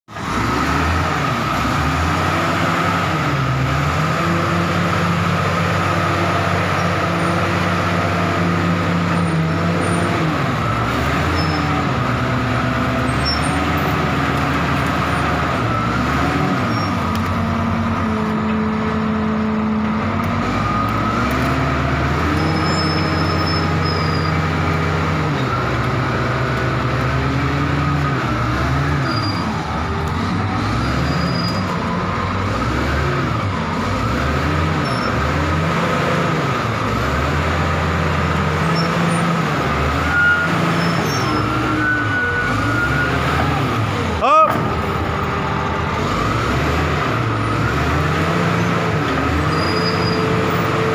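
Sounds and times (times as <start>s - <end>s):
bulldozer diesel engine working: 0.1s - 50.9s.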